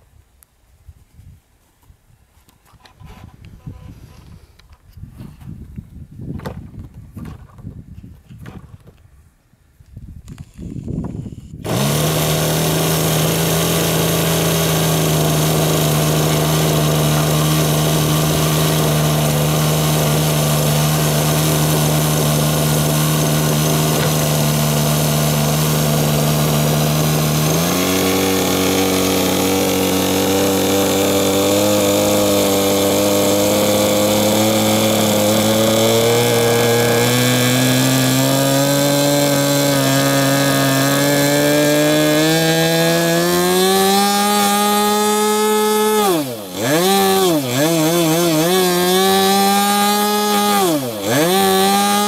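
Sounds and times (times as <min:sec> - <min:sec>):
model aircraft engine running: 0:10.4 - 0:41.4.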